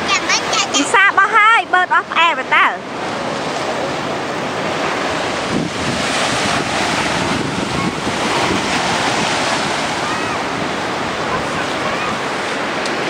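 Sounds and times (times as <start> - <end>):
surf washing onto beach: 0.0 - 13.0
wind on microphone: 2.8 - 13.0.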